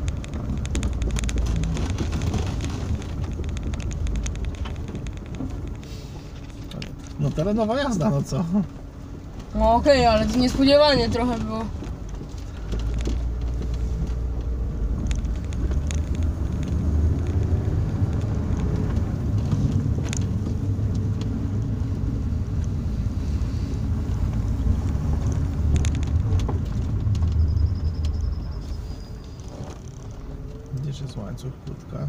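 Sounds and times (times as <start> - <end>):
sharp knocks and clicks: 0.0 - 5.8, 10.9 - 21.4
engine and tyres rumbling: 0.0 - 32.0.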